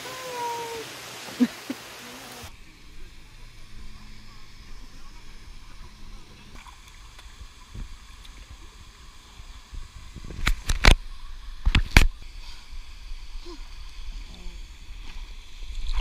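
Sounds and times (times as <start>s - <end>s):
water sloshing and lapping: 13.3s - 16.0s.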